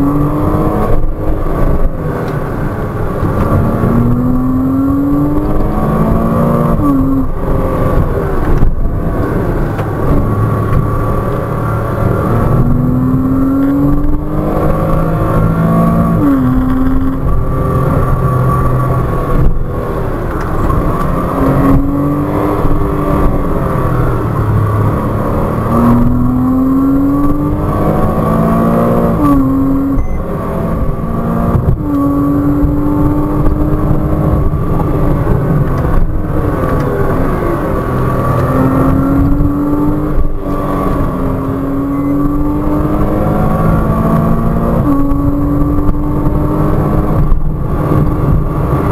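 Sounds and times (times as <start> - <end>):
car engine accelerating: 0.0 - 48.9
road and tyre noise: 0.0 - 48.9.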